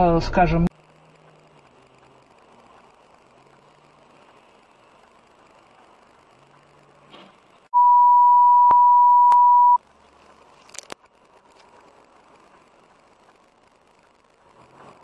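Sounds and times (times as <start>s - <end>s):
loud electronic beep: 7.8s - 9.8s.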